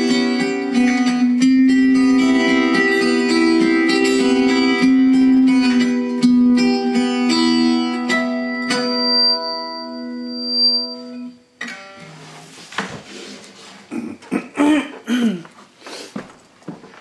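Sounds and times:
acoustic guitar chord ringing: 0.0 - 12.5
guitar being handled: 11.6 - 13.9, 15.5 - 17.0.

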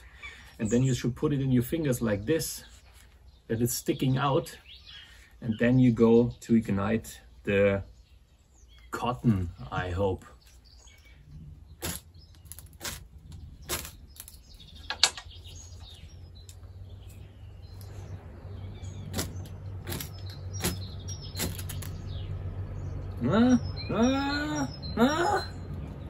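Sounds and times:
ferro rod scrapes: 11.8 - 14.5.

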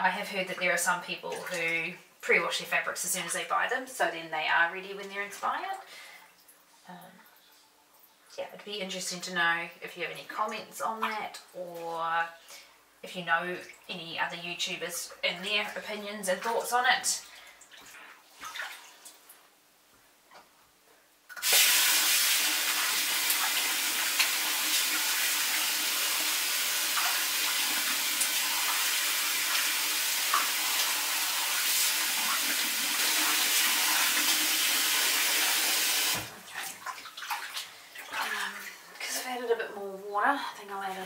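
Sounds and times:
tap water pouring into sink: 21.3 - 37.4.

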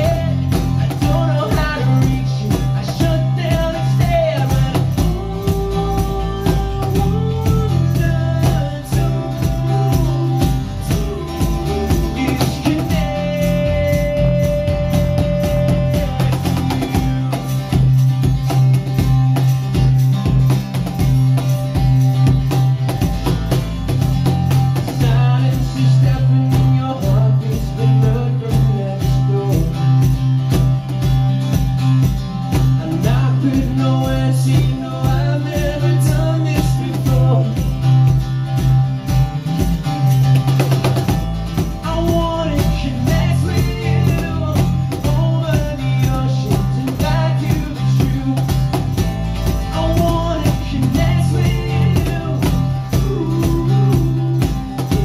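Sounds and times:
lead vocal singing: 0.0 - 17.2, 24.8 - 30.0, 32.7 - 37.8, 41.8 - 48.9, 49.6 - 55.0
bass guitar: 0.0 - 55.0
cajon beat: 0.0 - 55.0
strummed acoustic guitar: 0.0 - 55.0.

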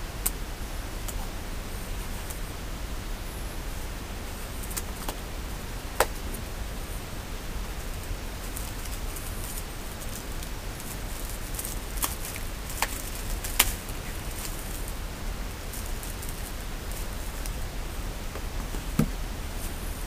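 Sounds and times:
steady hiss: 0.0 - 20.0
packet crinkling: 8.4 - 15.0, 15.6 - 17.6.

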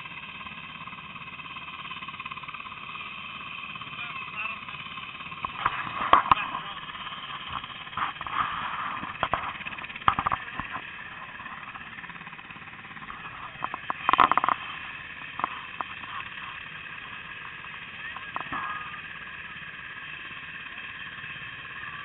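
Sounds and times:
helicopter engine whine: 0.0 - 22.0
loud crackling bursts: 5.1 - 21.9.

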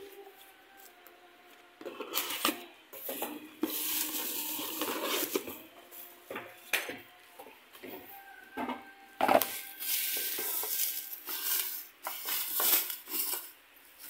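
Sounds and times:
steady hiss: 0.0 - 6.6, 9.2 - 14.0
cookware clinking and clattering: 6.3 - 7.1.

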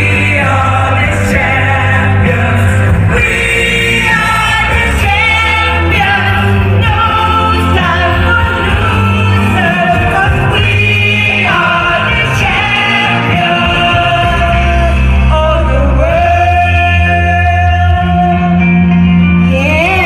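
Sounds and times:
live band music: 0.0 - 20.0
person singing: 0.0 - 20.0
steady bass: 0.0 - 20.0.

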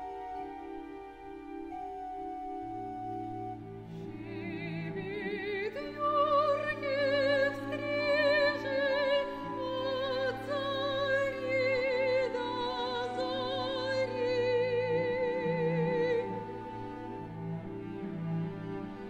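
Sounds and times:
soprano singing with vibrato: 3.7 - 17.8.

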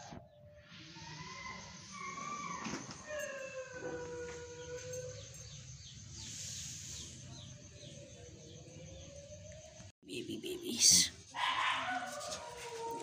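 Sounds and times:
puppies whining: 1.2 - 5.6.

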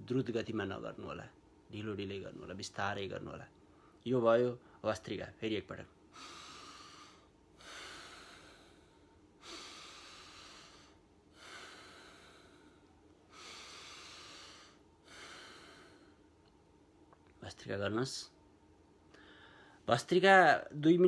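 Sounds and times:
forceful breaths through nose: 6.1 - 16.2.

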